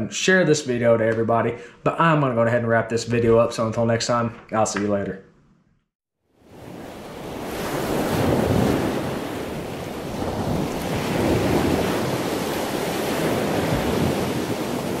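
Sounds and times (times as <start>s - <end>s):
ocean waves breaking: 6.4s - 15.0s.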